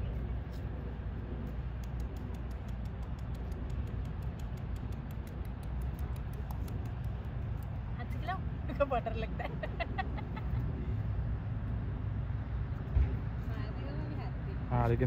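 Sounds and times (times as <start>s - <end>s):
steady low rumble: 0.0s - 15.0s
beak tapping on concrete: 1.5s - 8.0s.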